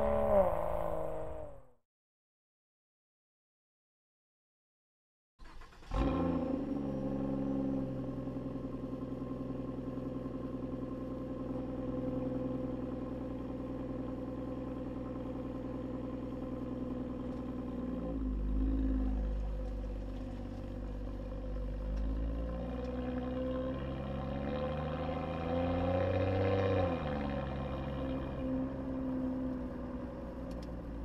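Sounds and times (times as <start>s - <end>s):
car engine idling: 7.9s - 22.5s.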